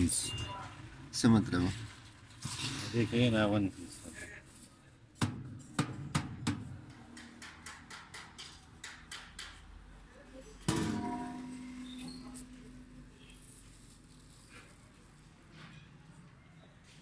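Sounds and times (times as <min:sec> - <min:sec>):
knocks on metal drum: 0:10.7 - 0:11.6.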